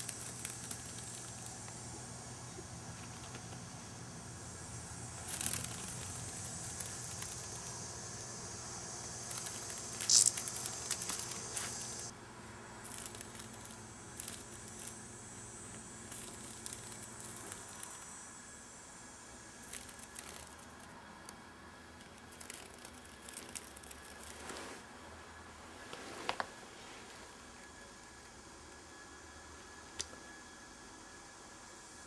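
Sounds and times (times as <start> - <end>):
cicada buzzing: 0.0 - 24.5.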